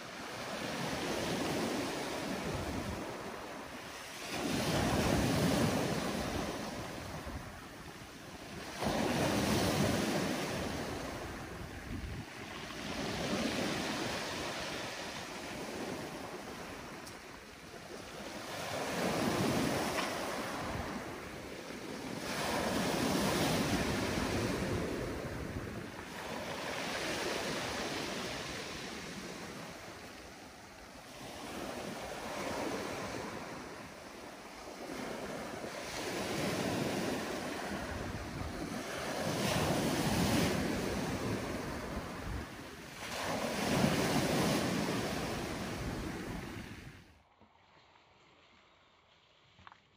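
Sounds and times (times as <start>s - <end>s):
waves washing up pebbly beach: 0.0s - 47.1s.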